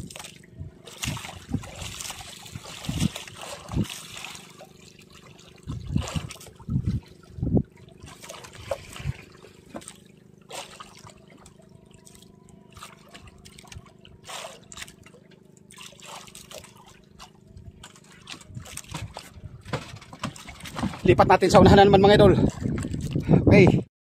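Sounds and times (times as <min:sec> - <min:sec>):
water splashing and trickling: 0:00.0 - 0:23.5
steady low hum: 0:00.0 - 0:23.8.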